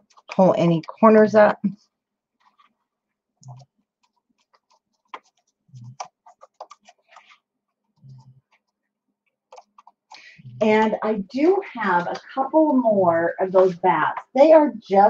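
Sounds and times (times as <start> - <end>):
paper crackling and clicks: 3.5 - 7.4.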